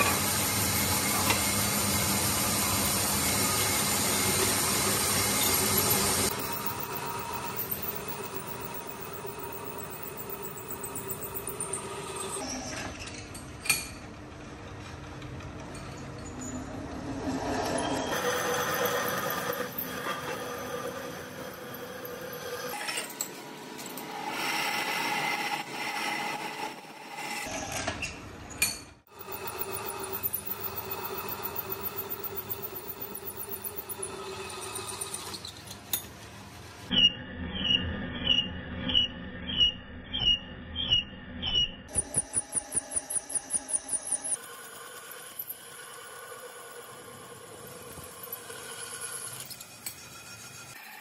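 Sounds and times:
drill bit squealing on metal: 5.4s - 12.7s.

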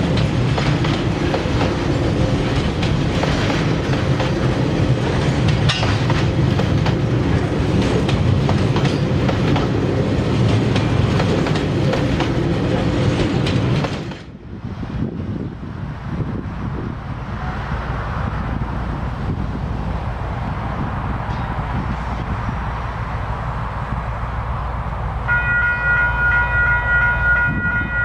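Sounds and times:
wheels clicking over rail joints: 0.0s - 14.3s
freight train rolling on rails: 0.0s - 28.0s.

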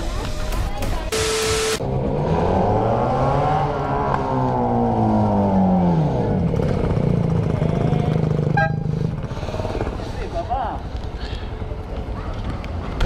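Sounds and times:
motorcycle engine revving: 1.1s - 10.1s.

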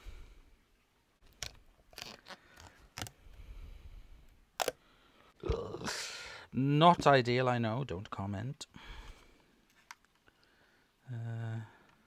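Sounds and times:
tape rasping: 1.3s - 3.2s
tape clicks and crackles: 9.6s - 10.5s.

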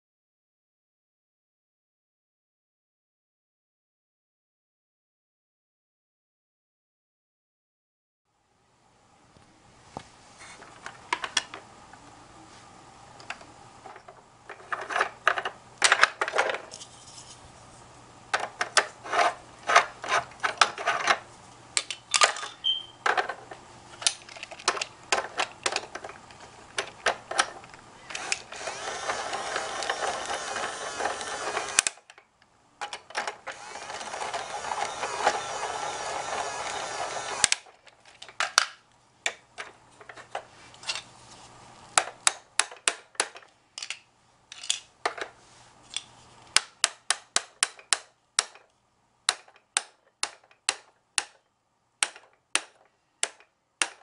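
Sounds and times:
plastic toy parts clicking: 21.8s - 23.4s, 24.0s - 35.4s, 42.0s - 45.3s
toy drill whirring: 28.0s - 32.0s, 33.4s - 37.7s.

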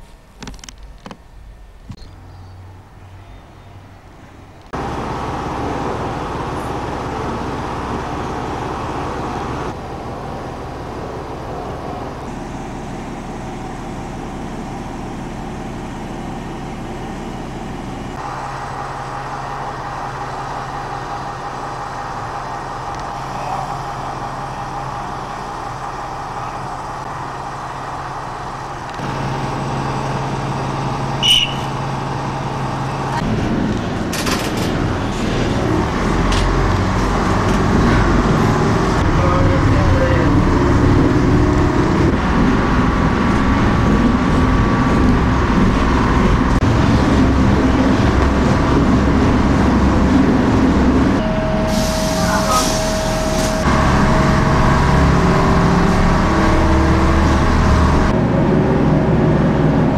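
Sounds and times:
diesel railbus engine idling: 1.3s - 59.9s
short high-pitched whistle: 31.2s - 31.7s.

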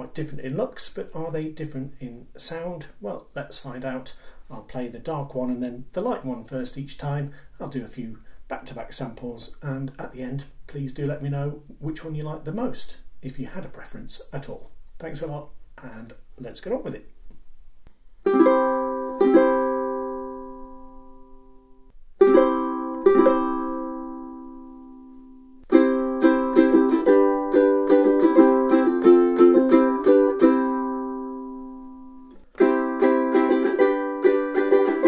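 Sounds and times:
ukulele strumming: 18.2s - 21.6s, 22.2s - 35.0s.

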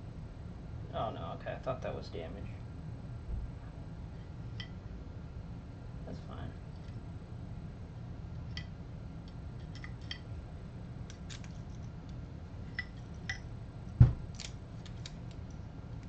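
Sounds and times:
low steady hum: 0.0s - 16.0s
heavy knock: 14.0s - 14.3s.

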